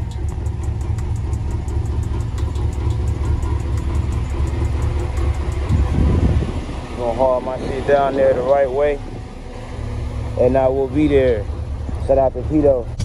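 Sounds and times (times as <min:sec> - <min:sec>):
fast even ticking: 0:00.0 - 0:07.5
vehicle engine idling: 0:00.0 - 0:13.0.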